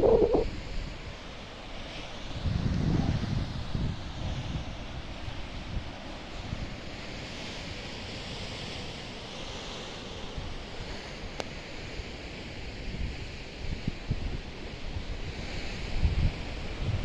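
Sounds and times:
sea swell washing on rocks: 0:00.0 - 0:00.4
wind rumbling on microphone: 0:00.0 - 0:01.1, 0:02.3 - 0:06.7, 0:13.0 - 0:17.0.

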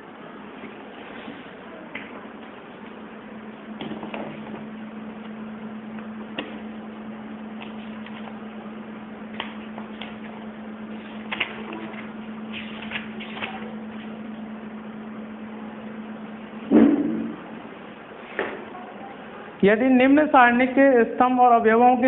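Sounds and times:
low hum: 0:13.7 - 0:18.2.

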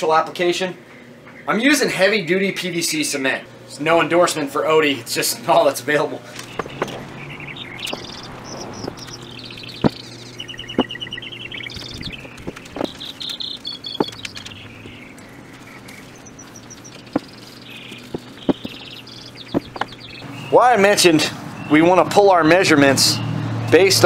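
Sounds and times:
small birds chirping and trilling: 0:06.4 - 0:24.0.

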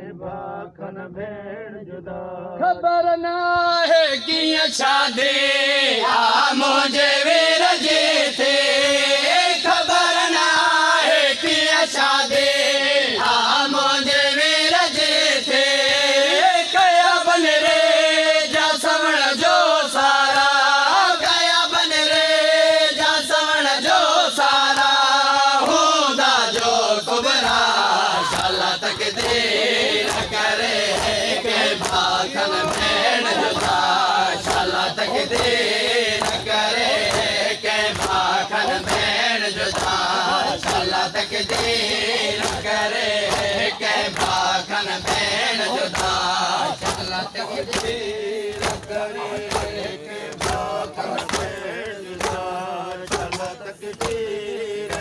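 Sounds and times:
men chanting: 0:00.0 - 0:55.0
crowd voices: 0:18.9 - 0:55.0.

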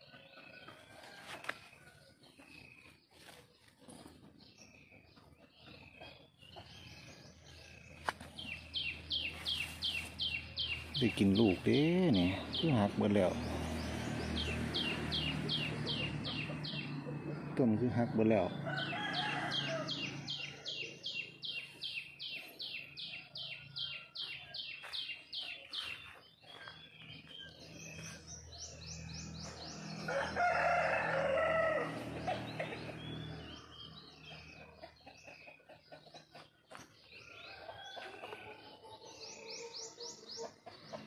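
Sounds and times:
birds calling: 0:00.0 - 0:41.0
rooster crowing: 0:16.7 - 0:20.5, 0:29.9 - 0:32.9.

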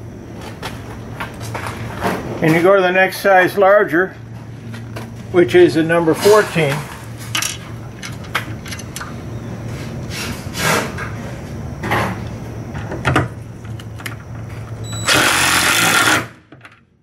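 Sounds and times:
impact driver driving screw: 0:15.0 - 0:16.3.

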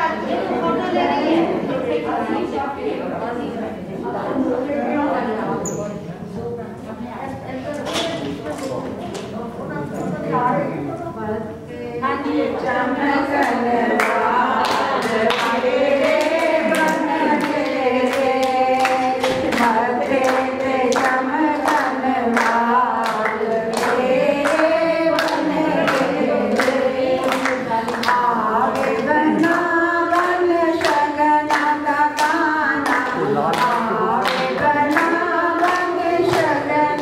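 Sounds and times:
group singing: 0:11.6 - 0:37.0
rhythmic hand-clapping: 0:13.0 - 0:37.0.

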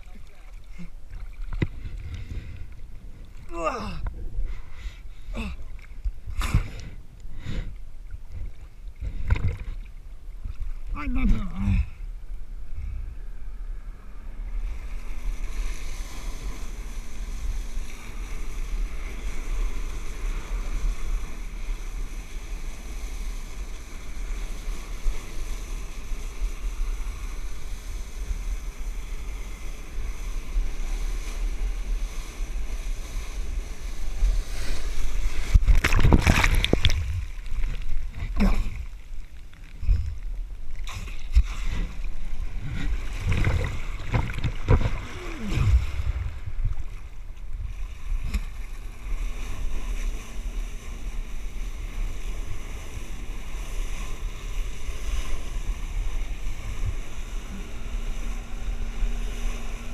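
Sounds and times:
water splashing: 0:00.0 - 0:04.1, 0:28.9 - 0:50.3
wind on microphone: 0:10.4 - 0:39.0, 0:39.7 - 0:51.0
water jets blasting onto sea: 0:13.8 - 0:59.9.

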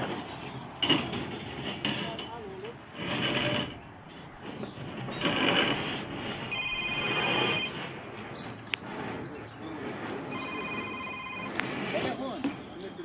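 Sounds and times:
steel bars scraping: 0:00.0 - 0:13.0
pulsing metallic ringing: 0:06.5 - 0:07.9.

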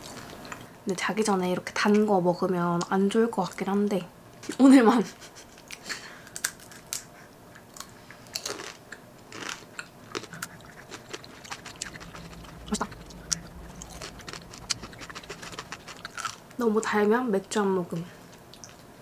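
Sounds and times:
candy shell crunching when bitten: 0:07.8 - 0:16.4.

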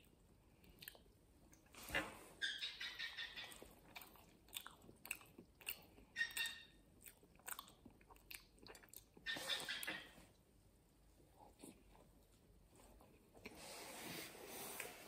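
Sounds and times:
person chewing pastry: 0:00.0 - 0:01.8, 0:03.4 - 0:09.9.

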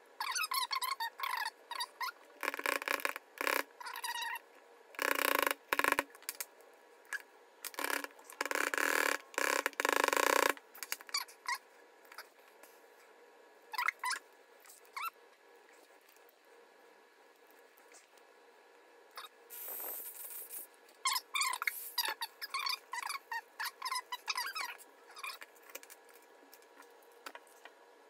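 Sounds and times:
plastic squeaks: 0:00.2 - 0:04.4, 0:21.0 - 0:25.9.

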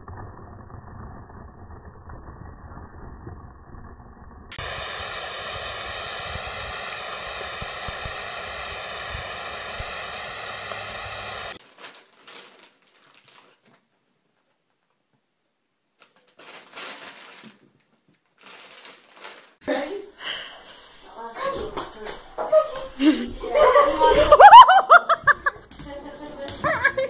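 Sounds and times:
low rumbling noise: 0:00.0 - 0:11.6
water spraying from a hose: 0:04.5 - 0:11.6.

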